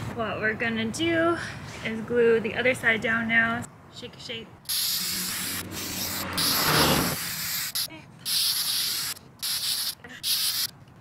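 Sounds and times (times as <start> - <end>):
aerosol can spraying: 4.7 - 10.7.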